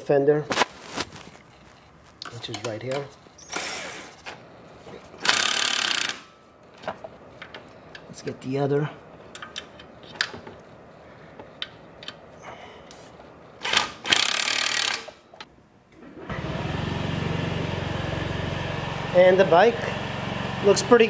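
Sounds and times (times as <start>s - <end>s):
tool handling clicks: 2.2s - 4.4s, 9.3s - 10.6s, 11.4s - 12.2s
impact driver running: 5.2s - 6.3s.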